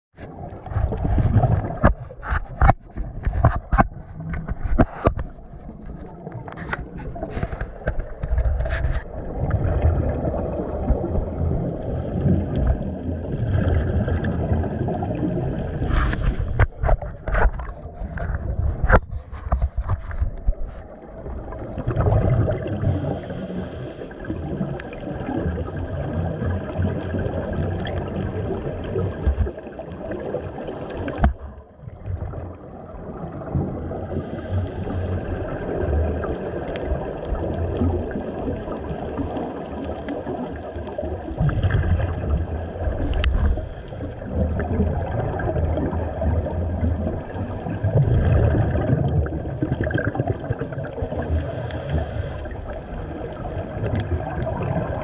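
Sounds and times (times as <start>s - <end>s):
underwater exhaled bubbles gurgling: 0.2s - 55.0s.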